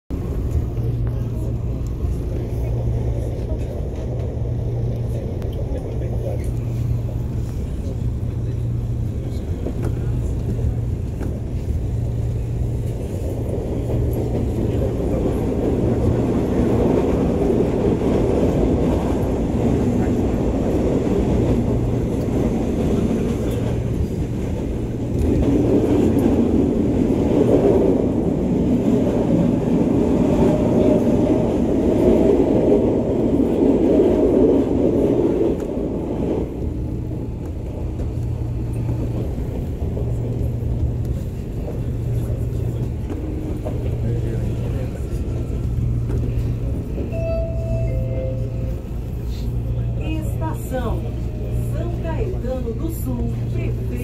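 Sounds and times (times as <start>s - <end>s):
train wheels rumbling on rail: 0.1s - 54.0s.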